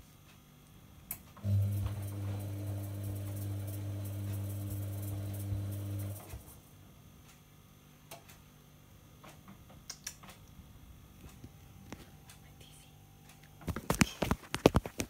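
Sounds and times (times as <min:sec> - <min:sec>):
washing machine humming: 0:00.8 - 0:07.2.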